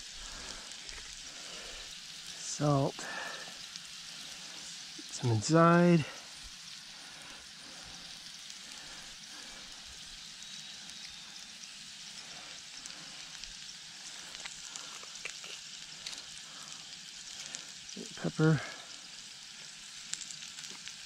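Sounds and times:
potatoes and onions sizzling in oil: 0.0 - 21.0.

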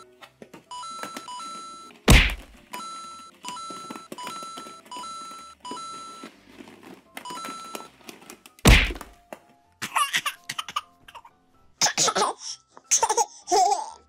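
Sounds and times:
loud thunk: 8.7 - 9.1.

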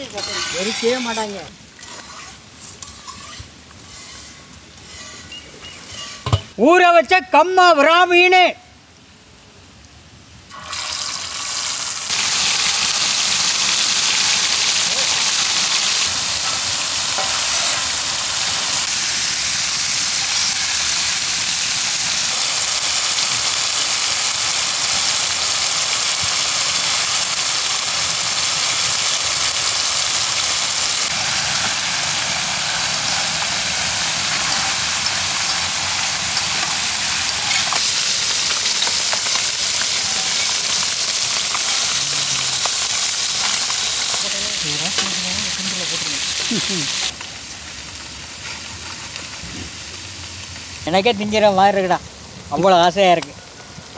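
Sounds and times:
utensils scraping pan: 0.0 - 6.5, 15.6 - 17.9
fish frying with loud sizzle: 10.5 - 53.0.

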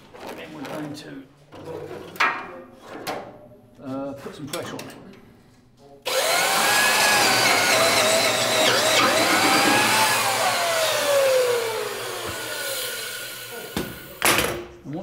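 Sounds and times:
electric drill boring into steel: 6.1 - 14.2.

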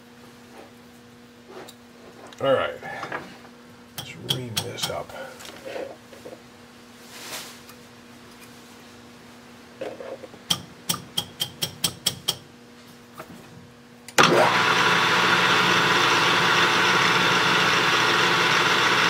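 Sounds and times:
lathe motor running: 14.2 - 19.0.

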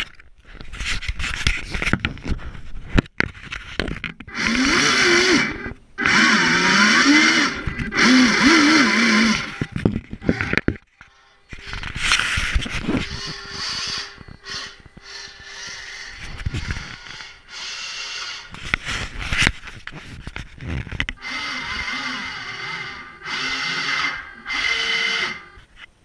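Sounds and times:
small electric motor whirring: 4.3 - 10.8, 11.6 - 19.4, 21.2 - 25.7.

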